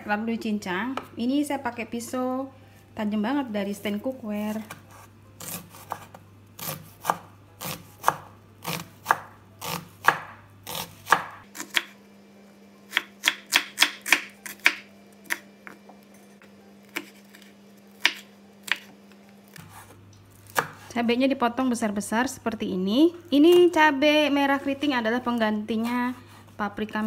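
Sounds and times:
knife chopping on wooden board: 4.6 - 12.0, 12.9 - 15.8, 16.9 - 18.9, 19.5 - 20.9.

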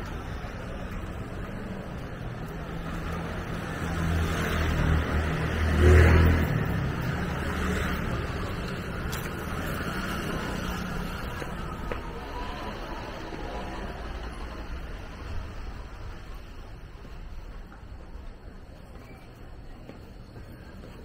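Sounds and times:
vehicle engine passing by: 3.0 - 16.4.

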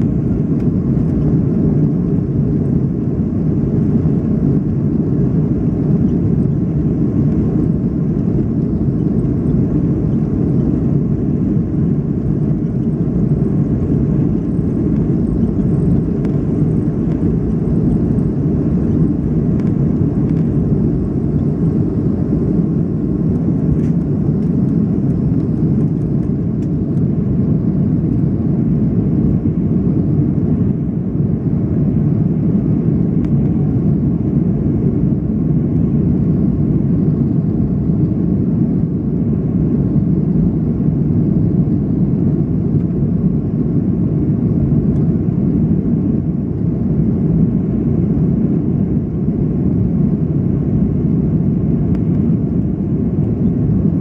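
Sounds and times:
airplane cabin rumble: 0.0 - 54.0.

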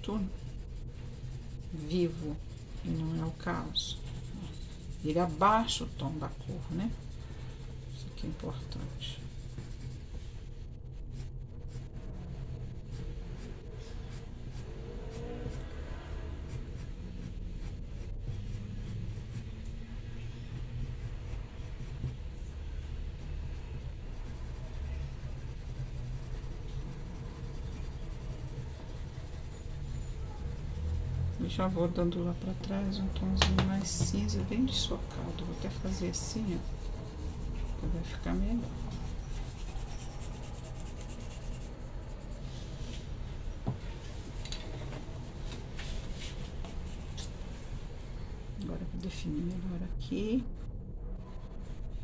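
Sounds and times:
pencil scratching on paper: 0.0 - 10.3, 12.8 - 43.0
low steady rumble: 0.0 - 52.0.

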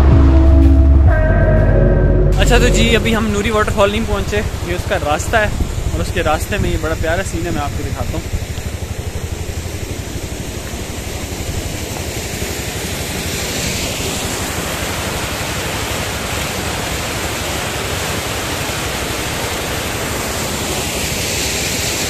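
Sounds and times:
stream rushing over rocks: 8.2 - 22.0.

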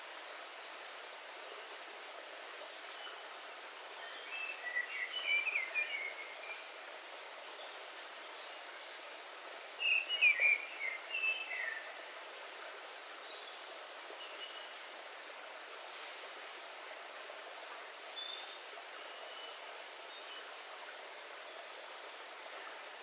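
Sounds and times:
stream trickling: 0.0 - 23.0
songbird singing: 2.5 - 9.0, 9.8 - 12.0, 18.1 - 20.6.

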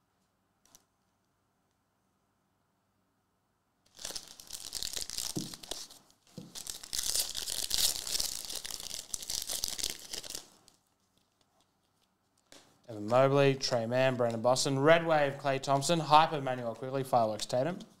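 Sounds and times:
foil wrapper tearing and crinkling: 3.9 - 10.9.

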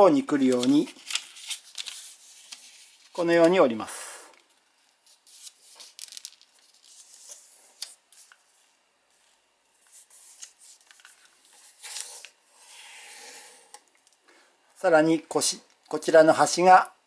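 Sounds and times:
paper being folded: 0.3 - 3.6, 4.5 - 13.0
paper rustling: 0.3 - 3.6, 4.5 - 12.3.

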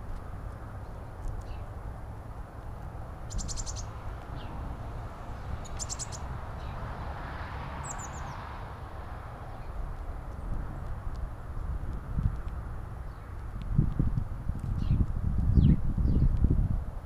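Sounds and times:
small songbird calling: 3.2 - 4.6, 5.3 - 6.8, 7.8 - 8.4
steady low rumble: 8.8 - 17.0.

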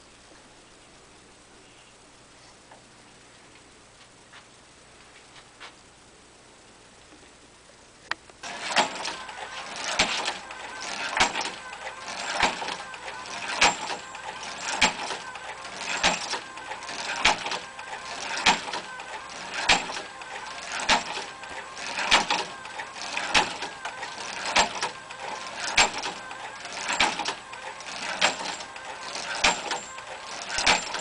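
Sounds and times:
electric motor running: 8.4 - 31.0.

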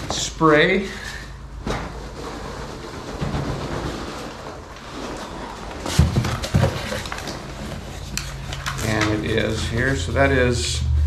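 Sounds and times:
foam packing peanuts rustling: 2.0 - 10.3
box thumping down: 5.8 - 7.4.

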